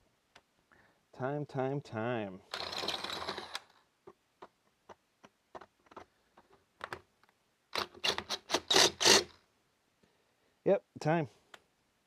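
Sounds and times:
hammer drill: 0:02.5 - 0:03.7, 0:07.8 - 0:09.3
drill bit clicks and scrapes: 0:02.5 - 0:03.8, 0:07.8 - 0:09.3.

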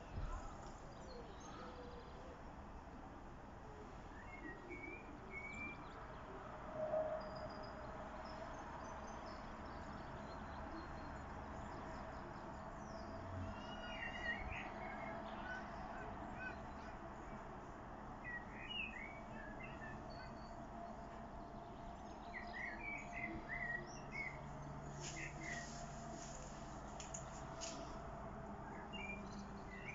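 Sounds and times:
blackbird singing: 0:04.2 - 0:05.9, 0:12.9 - 0:17.0, 0:18.2 - 0:20.6, 0:22.0 - 0:25.8, 0:28.7 - 0:29.9.

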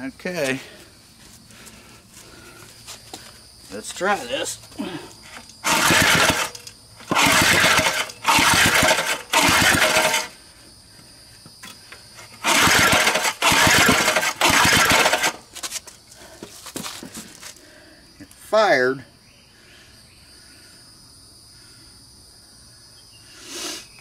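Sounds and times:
recoil starter pulls engine turning over: 0:05.2 - 0:10.4, 0:12.2 - 0:15.5.

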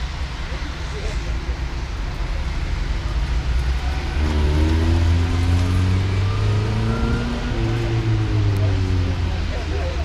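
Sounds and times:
car engine revving: 0:03.2 - 0:09.7.

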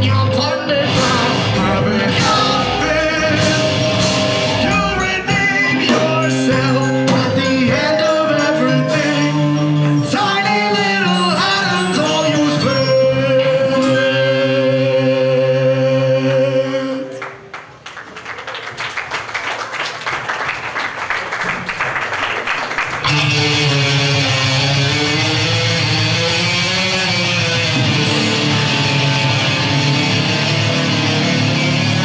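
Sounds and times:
live rock band: 0:00.0 - 0:17.2, 0:22.8 - 0:32.0
man singing: 0:00.0 - 0:17.2
electric guitar: 0:00.0 - 0:17.5, 0:22.9 - 0:32.0.

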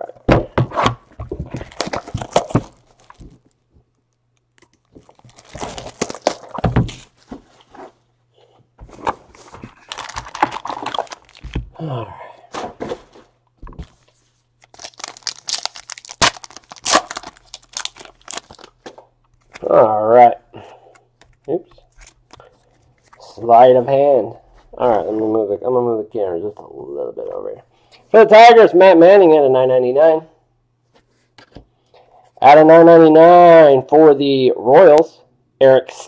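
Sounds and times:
plastic wrap crinkling and tearing: 0:01.4 - 0:03.6, 0:04.5 - 0:07.3, 0:09.5 - 0:11.7, 0:14.6 - 0:18.8.

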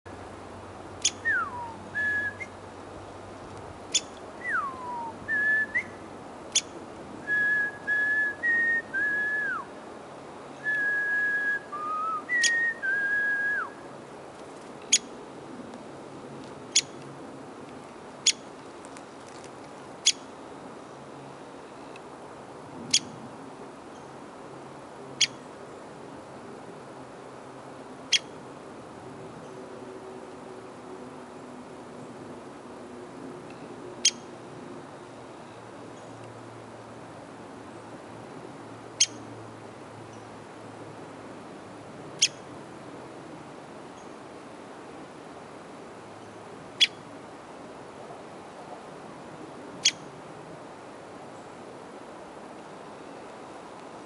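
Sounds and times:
man whistling: 0:01.3 - 0:02.4, 0:04.5 - 0:05.9, 0:07.3 - 0:09.6, 0:10.6 - 0:13.7.

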